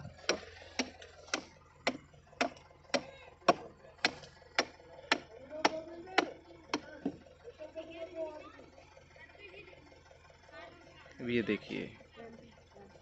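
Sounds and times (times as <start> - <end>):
sharp evenly spaced clicks: 0.3 - 7.0.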